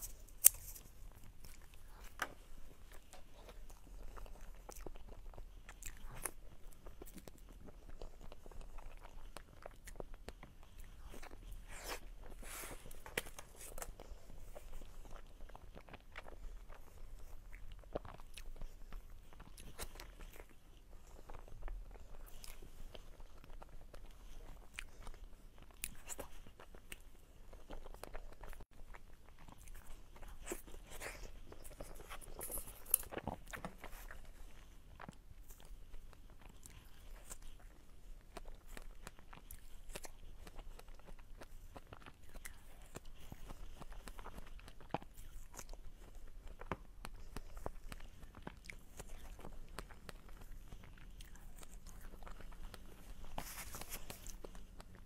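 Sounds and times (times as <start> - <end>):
person biting and chewing: 0.0 - 2.3.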